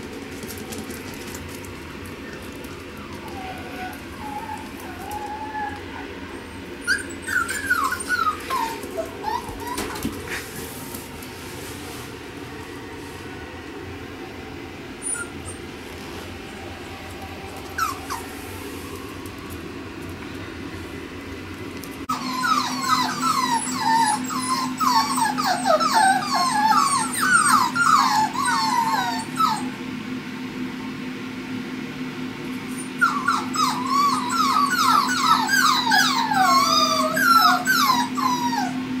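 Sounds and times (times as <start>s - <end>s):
puppies whining and yipping: 2.1s - 11.3s, 15.0s - 16.4s, 17.5s - 19.1s, 22.0s - 29.9s, 32.7s - 39.0s.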